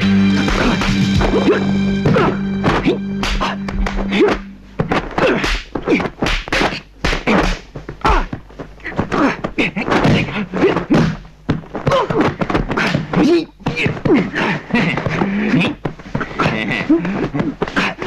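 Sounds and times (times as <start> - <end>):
fighters grunting and shouting: 0.2 - 11.2, 11.8 - 18.0
punch and kick whacks: 0.4 - 7.7.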